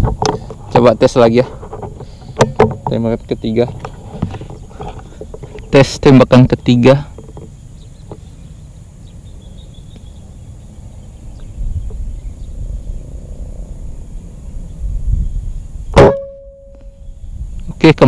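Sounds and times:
brief ringing tone: 0:16.0 - 0:17.0.

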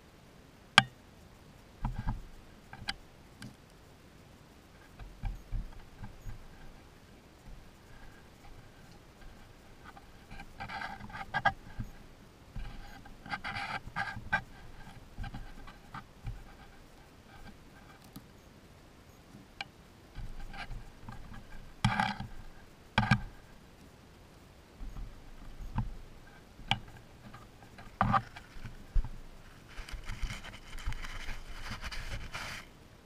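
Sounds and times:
animals scratching in dry mulch: 0:04.6 - 0:18.0, 0:25.0 - 0:32.8.

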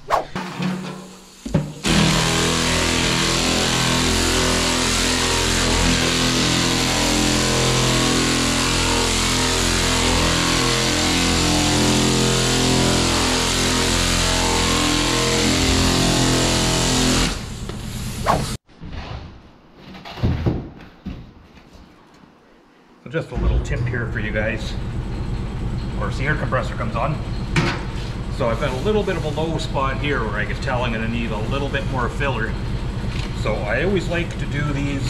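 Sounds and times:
pneumatic sander running: 0:01.1 - 0:18.6.

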